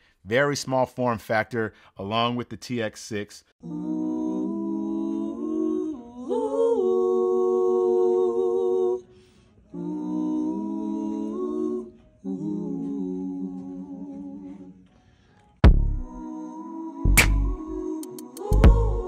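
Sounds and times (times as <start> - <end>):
layered voices humming: 16.1 - 19.0.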